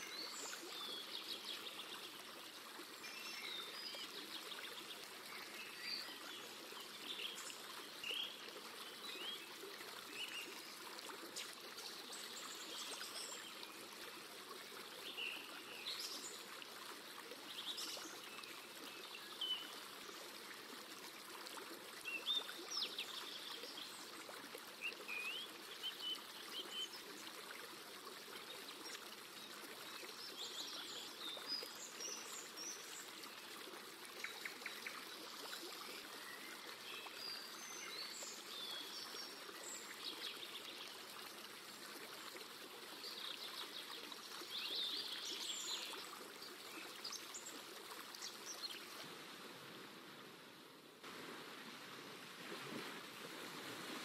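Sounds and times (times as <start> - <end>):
stream running: 0.0 - 54.0.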